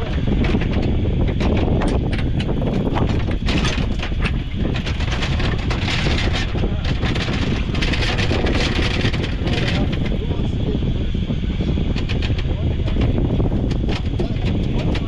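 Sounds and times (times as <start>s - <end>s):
clicks and knocks: 0.0s - 10.1s
outboard motor: 0.0s - 15.0s
wind rumble on microphone: 0.0s - 15.0s.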